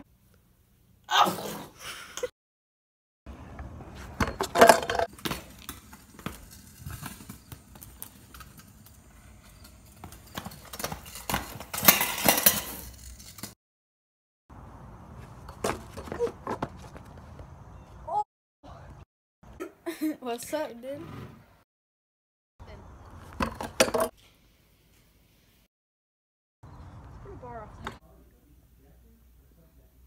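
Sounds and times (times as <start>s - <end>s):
scooter clattering on pavement: 3.4s - 13.6s, 15.1s - 17.9s, 23.2s - 24.2s.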